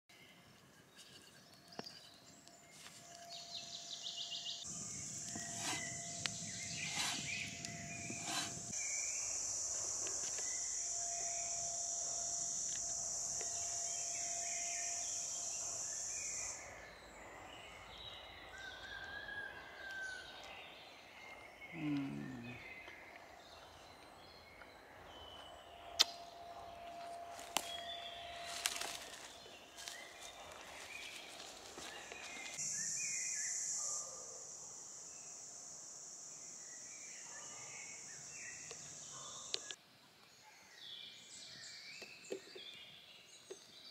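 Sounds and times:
high-pitched hiss or buzz: 3.3s - 16.8s, 32.5s - 39.8s
faint bird chirps: 21.1s - 31.2s.

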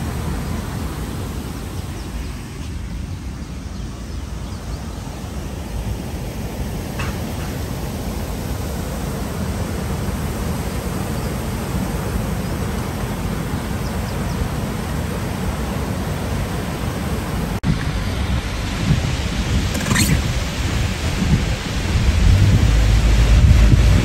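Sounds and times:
wind buffeting microphone: 16.5s - 24.0s.

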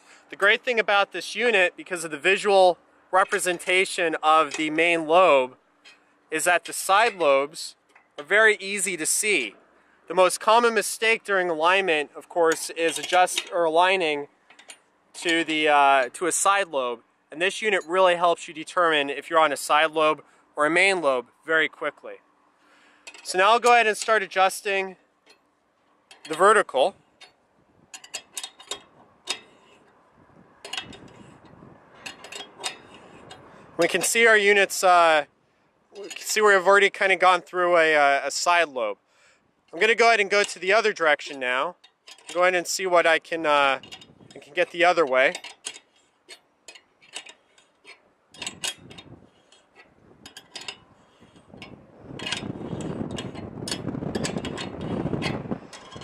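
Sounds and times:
metallic clicks and knocks: 3.2s - 9.3s, 10.4s - 16.4s, 23.0s - 35.2s, 36.0s - 37.2s, 39.7s - 56.0s.

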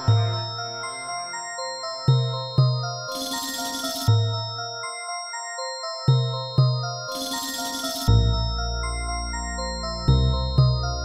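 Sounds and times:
chiming bell-like tones: 0.0s - 11.0s
deep bass notes: 8.1s - 11.0s.

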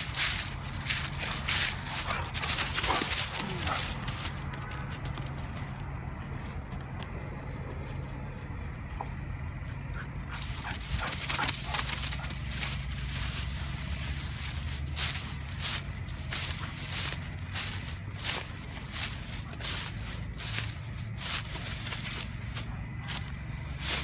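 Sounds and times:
dry leaves crackling underfoot: 0.0s - 6.6s, 10.3s - 24.0s.

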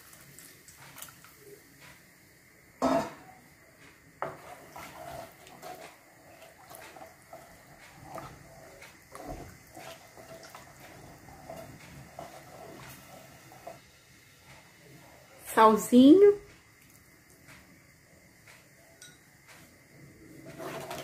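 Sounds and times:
pots and utensils clattering: 2.8s - 3.3s, 4.2s - 13.8s, 20.4s - 21.0s.

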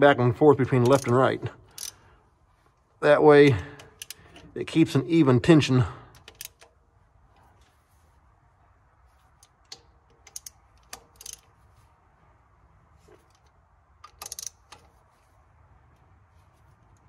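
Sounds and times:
hand tools clicking on metal bolts: 0.7s - 2.1s, 3.5s - 4.6s, 6.1s - 6.8s, 9.3s - 11.6s, 13.2s - 15.0s.

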